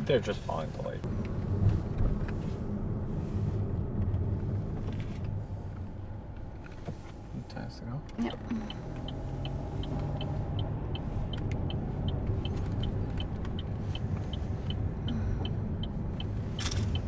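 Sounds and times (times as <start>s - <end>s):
road rumble: 0.0s - 17.0s
turn signal ticking: 8.0s - 17.0s.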